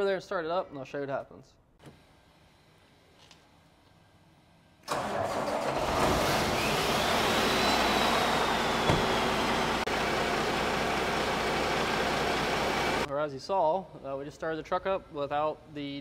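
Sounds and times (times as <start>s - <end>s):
diesel truck engine starting and idling: 4.8s - 13.1s.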